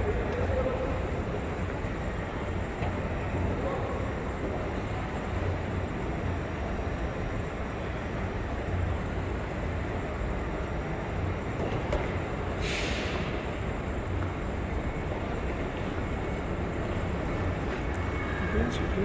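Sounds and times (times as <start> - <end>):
air hiss: 12.6 - 13.4.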